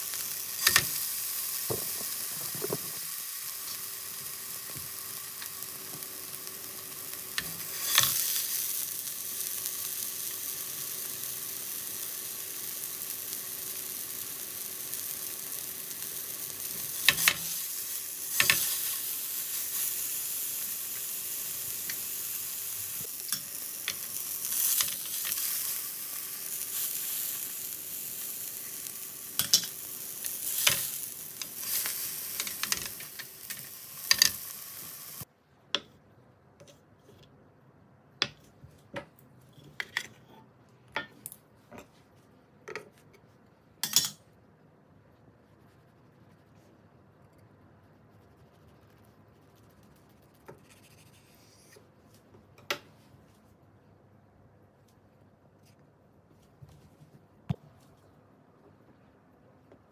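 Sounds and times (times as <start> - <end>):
sausage sizzling in a frying pan: 0.0 - 35.3.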